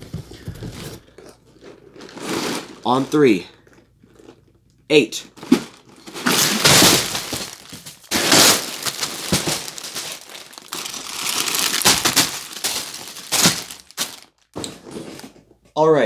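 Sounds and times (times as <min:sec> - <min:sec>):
plastic bags tumbling onto table: 0:05.3 - 0:15.5.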